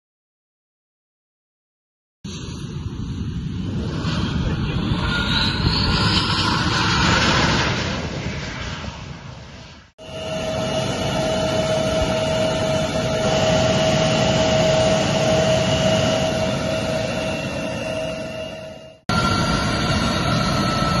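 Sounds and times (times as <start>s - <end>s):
jet engine idling: 10.0s - 21.0s.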